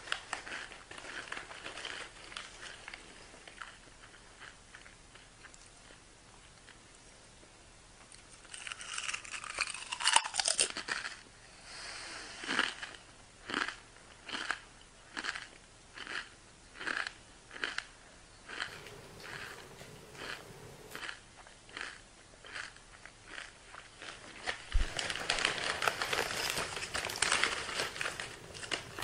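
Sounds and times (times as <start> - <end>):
person chewing crunchy food: 0.0 - 6.0, 8.1 - 11.2, 12.4 - 17.9, 18.5 - 29.0.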